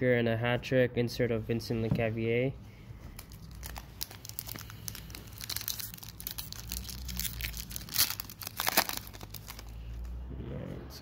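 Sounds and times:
foil wrapper crinkling: 3.2s - 9.8s
foil wrapper tearing: 3.2s - 9.8s.

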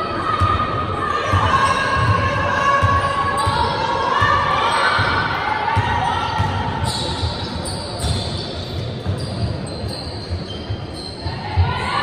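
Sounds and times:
basketball bouncing: 8.0s - 8.4s.

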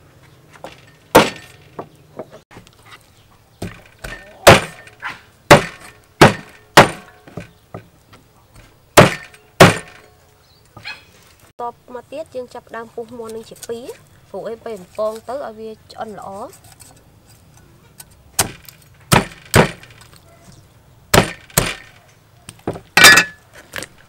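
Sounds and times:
cleaver chopping on wooden block: 0.6s - 2.3s, 3.6s - 7.9s, 9.0s - 10.0s, 18.4s - 19.9s, 21.1s - 22.0s.

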